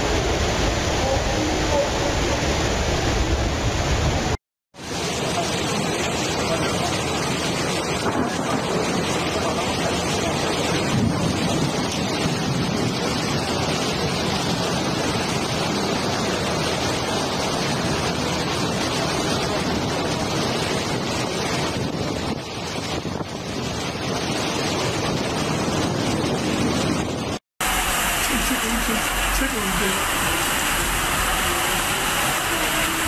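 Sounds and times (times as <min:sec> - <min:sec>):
choppy sea waves: 0:00.0 - 0:33.0
storm wind on microphone: 0:00.0 - 0:33.0.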